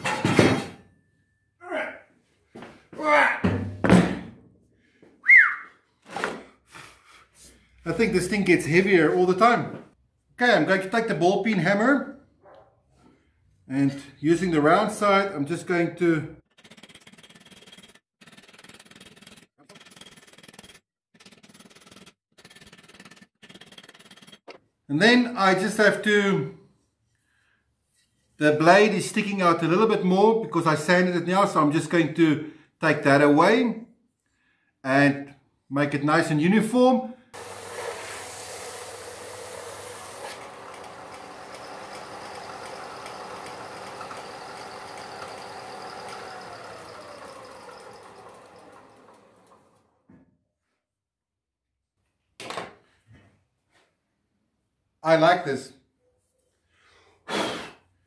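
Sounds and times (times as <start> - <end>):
belt sander grinding steel: 37.4 - 49.9
sander motor hum: 37.4 - 50.0.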